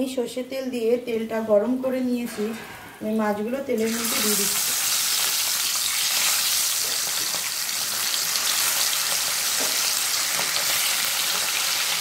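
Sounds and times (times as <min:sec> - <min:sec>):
fish sizzling in hot oil: 0:03.9 - 0:12.0.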